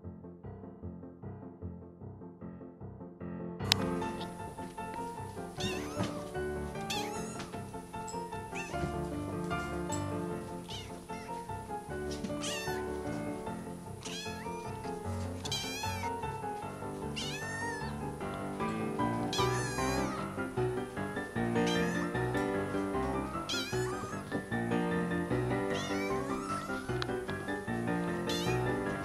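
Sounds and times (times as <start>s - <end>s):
kitten meowing: 3.9s - 4.4s, 5.5s - 7.6s, 8.5s - 9.1s, 10.4s - 13.1s, 14.0s - 16.3s, 17.1s - 18.1s, 19.1s - 20.6s, 21.5s - 22.4s, 23.0s - 24.5s, 25.6s - 27.3s, 28.0s - 28.8s.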